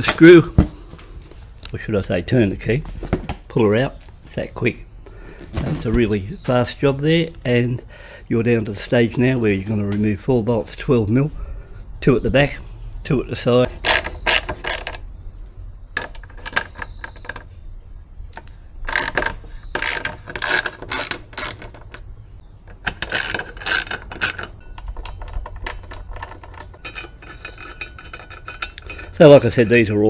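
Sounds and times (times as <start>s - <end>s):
socket ratchet clicking: 18.3s - 29.2s.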